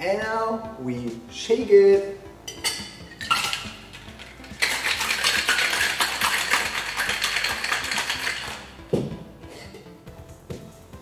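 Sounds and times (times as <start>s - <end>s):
metal tin clinking on glass: 2.5s - 8.7s
ice rattling in cocktail shaker: 3.1s - 8.8s.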